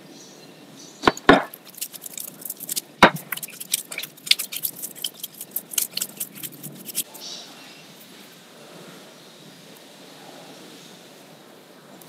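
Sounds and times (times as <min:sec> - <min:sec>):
heavier knocks on bowl: 0:01.0 - 0:01.5
hands kneading sticky dough: 0:01.0 - 0:07.1.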